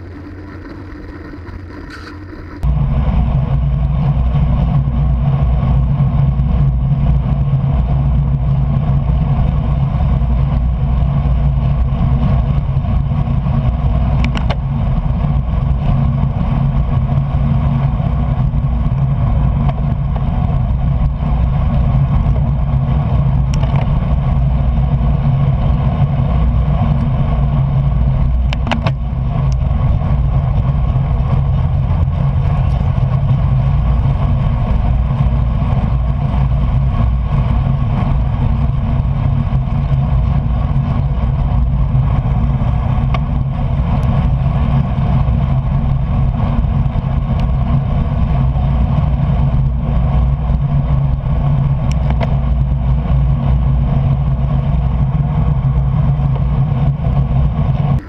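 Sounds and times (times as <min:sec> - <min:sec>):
wind and tyre noise: 0:00.0 - 0:58.0.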